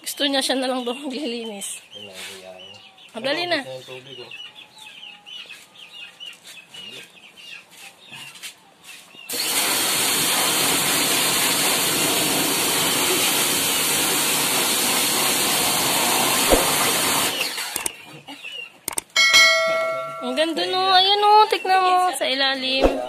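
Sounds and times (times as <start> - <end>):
pressure washer spraying: 9.3 - 17.9.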